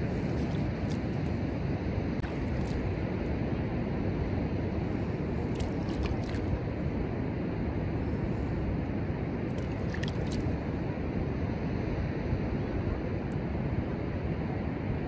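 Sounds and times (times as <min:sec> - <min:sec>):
wet sand dripping crackles: 0:00.0 - 0:01.6, 0:02.2 - 0:03.0, 0:05.4 - 0:06.6, 0:09.5 - 0:10.6
wind on microphone: 0:00.0 - 0:15.0.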